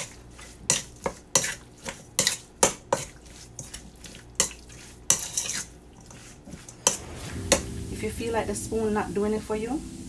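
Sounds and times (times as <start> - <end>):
spoon scraping bowl: 0.0 - 7.2.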